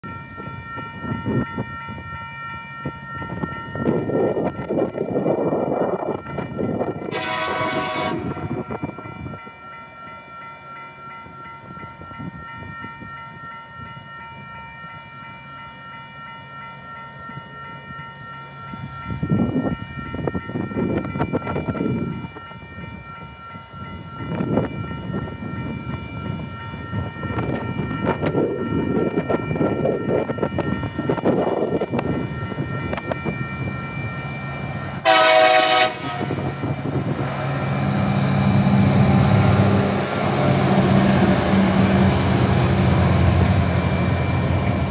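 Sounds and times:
crossing warning bell ringing: 0:00.0 - 0:44.9
diesel locomotive engine drone: 0:00.1 - 0:13.1, 0:15.1 - 0:44.9
train horn blast: 0:07.1 - 0:08.6, 0:35.0 - 0:36.7.

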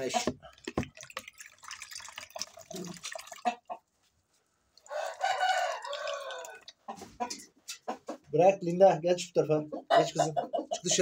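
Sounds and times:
water splashing in plastic basin: 0:00.0 - 0:03.8, 0:04.8 - 0:07.2
rooster crowing: 0:04.9 - 0:06.7.

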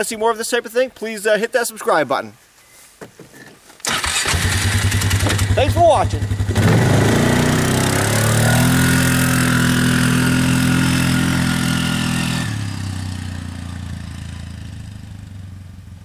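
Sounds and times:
quad bike engine driving away: 0:03.9 - 0:16.0.

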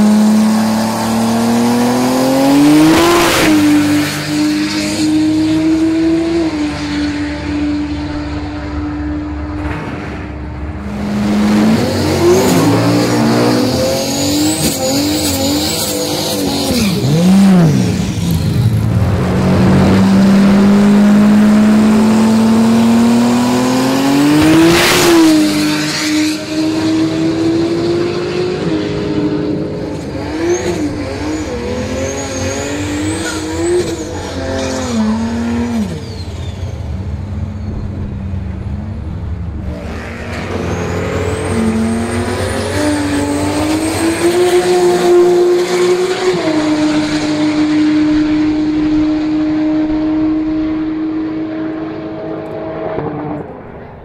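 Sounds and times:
turbocharged engine revving: 0:00.0 - 0:36.2, 0:39.5 - 0:53.7
tyre squeal: 0:30.4 - 0:38.2, 0:39.8 - 0:45.0.

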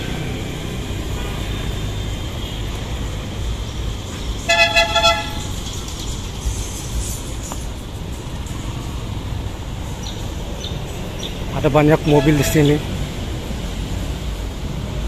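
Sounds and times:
street traffic rumble: 0:00.0 - 0:15.0
vehicle horn toot: 0:04.5 - 0:05.6, 0:12.0 - 0:12.8.

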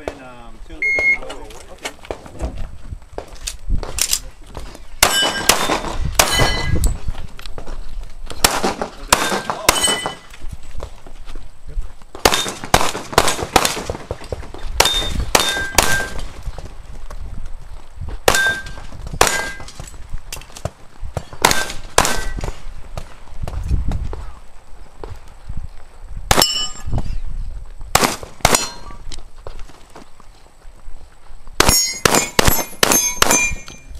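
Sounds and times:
pistol shots: 0:05.0 - 0:06.7, 0:08.4 - 0:10.2, 0:12.2 - 0:14.2, 0:14.8 - 0:16.2, 0:18.2 - 0:19.8, 0:21.4 - 0:22.6, 0:27.9 - 0:29.0, 0:31.6 - 0:33.8
steel target plates ringing: 0:05.0 - 0:06.8, 0:09.2 - 0:10.3, 0:18.3 - 0:19.8, 0:26.4 - 0:26.9, 0:28.6 - 0:29.0, 0:31.6 - 0:33.9.

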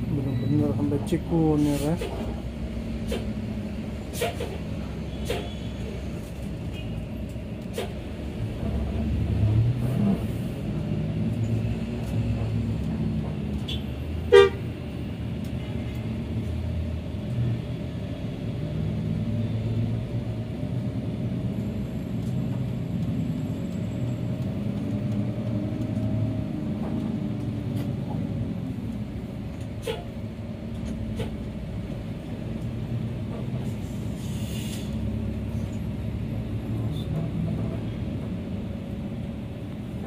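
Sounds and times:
bus engine running: 0:00.0 - 0:40.0
vehicle horn toot: 0:13.7 - 0:14.6.

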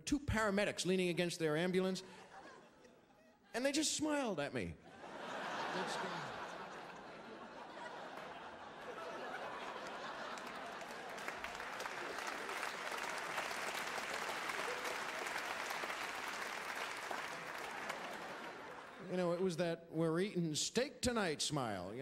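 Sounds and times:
audience applauding: 0:07.7 - 0:19.1.

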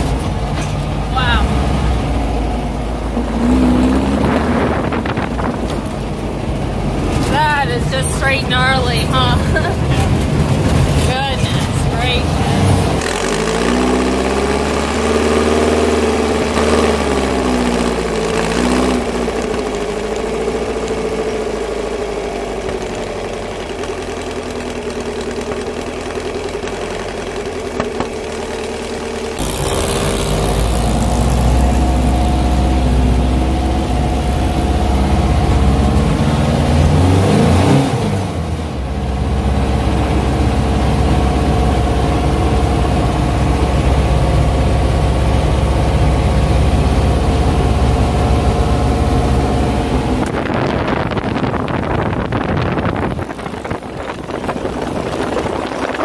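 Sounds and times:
car engines revving: 0:00.0 - 0:56.0
deep loud engine drone: 0:00.0 - 0:56.0.

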